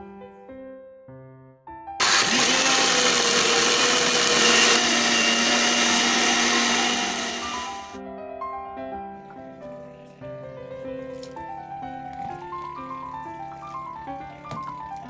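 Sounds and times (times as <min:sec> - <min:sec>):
blender grinding: 0:02.0 - 0:08.0.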